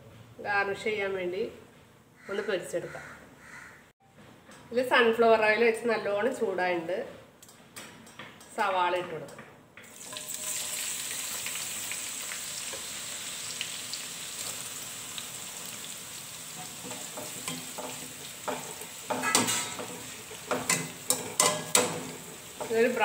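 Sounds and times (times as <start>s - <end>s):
onions sizzling in oil: 9.9s - 23.0s
spoon scraping and knocking pan: 16.5s - 23.0s.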